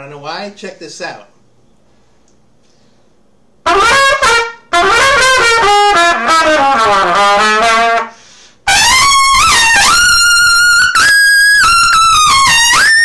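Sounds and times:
solo trumpet playing: 3.6 - 13.0.

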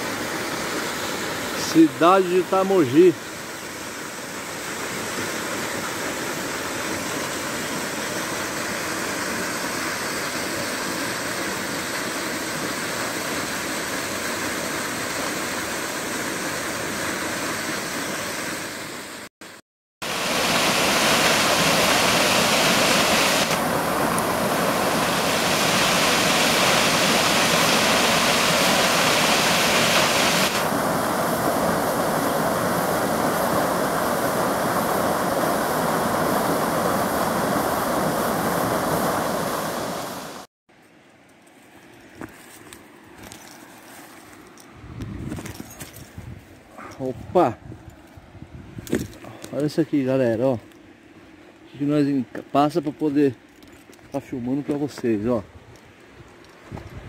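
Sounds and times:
waterfall rushing: 20.0 - 40.5.

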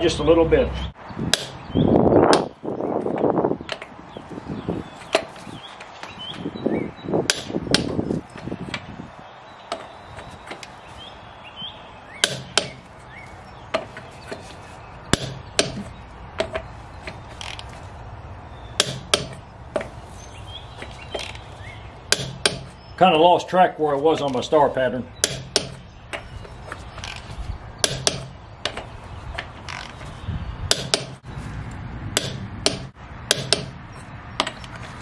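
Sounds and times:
socket scraping on nuts: 4.8 - 6.4, 7.3 - 8.9, 9.6 - 10.9, 12.2 - 18.0, 18.7 - 23.0, 25.2 - 31.3, 32.2 - 35.0.

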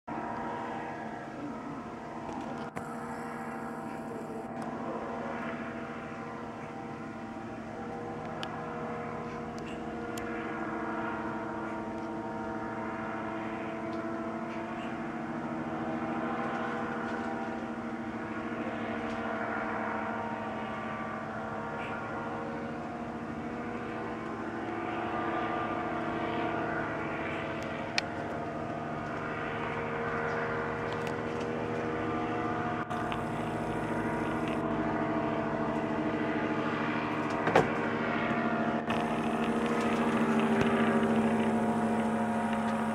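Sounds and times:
paraglider engine buzzing drone: 0.0 - 42.9.

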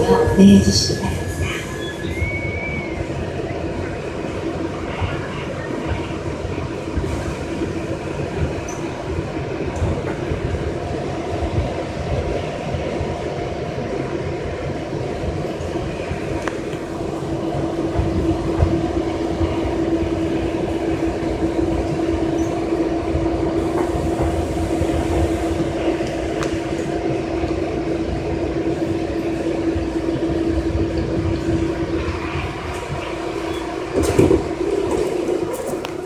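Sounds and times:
train running rumble: 0.0 - 36.0
droning traction tone: 15.6 - 36.0
train doors clattering open: 32.6 - 36.0.

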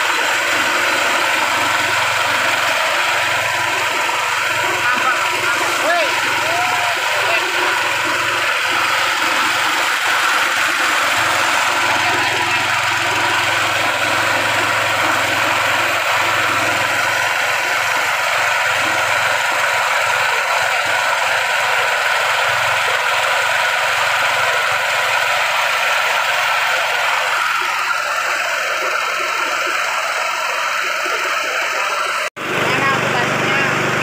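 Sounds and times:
low machine hum: 0.0 - 34.0
rice milling machine running: 0.0 - 34.0.

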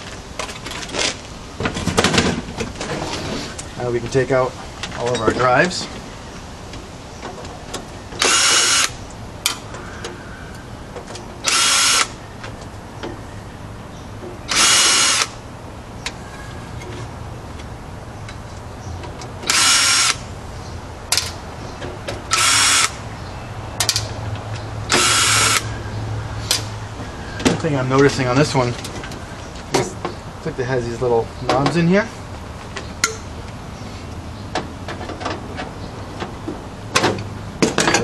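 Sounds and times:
cordless drill bursts: 8.2 - 8.9, 11.5 - 12.2, 14.5 - 15.4, 19.5 - 20.2, 22.3 - 23.0, 24.9 - 25.6.

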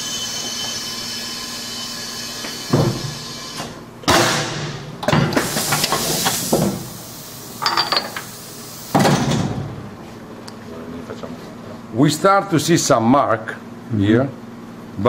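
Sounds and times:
sharp loud blast: 4.1 - 4.9
hiss of air: 5.3 - 9.0.

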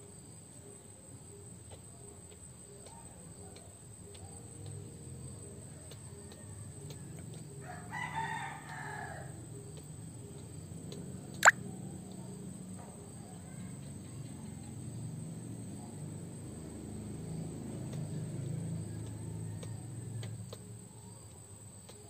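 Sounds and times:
faint rooster crowing: 4.8 - 10.7, 12.9 - 15.0, 17.2 - 22.0.

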